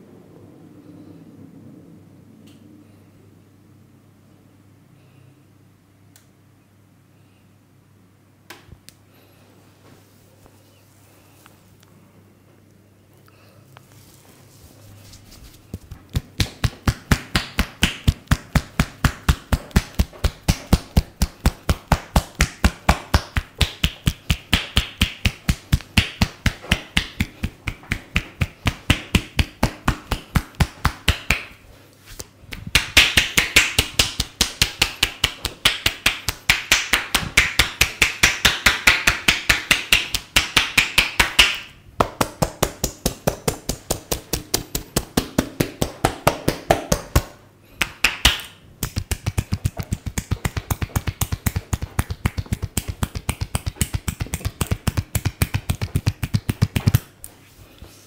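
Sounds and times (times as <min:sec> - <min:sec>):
hands slapping a head: 0:15.4 - 0:57.4.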